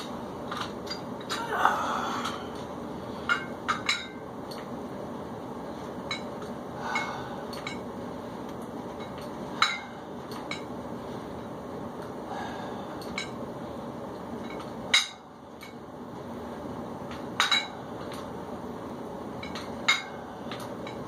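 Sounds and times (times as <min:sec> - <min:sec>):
metal dumbbells clinking: 0:00.5 - 0:01.5, 0:03.2 - 0:04.7, 0:06.1 - 0:07.9, 0:08.9 - 0:10.7, 0:14.4 - 0:15.8, 0:17.1 - 0:18.3, 0:19.4 - 0:21.0.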